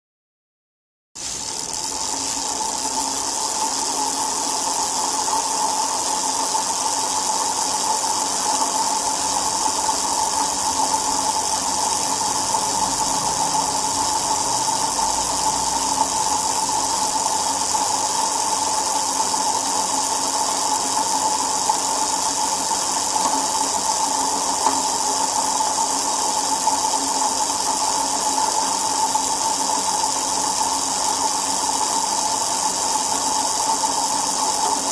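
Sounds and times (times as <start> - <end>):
spinning wheel whirring: 1.2 - 34.9.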